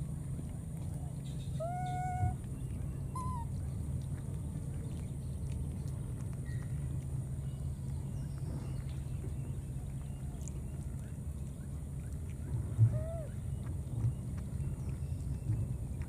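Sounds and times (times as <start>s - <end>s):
steady low rumble: 0.0s - 16.0s
baby macaque coo call: 1.6s - 2.4s, 3.1s - 3.5s, 12.8s - 13.4s.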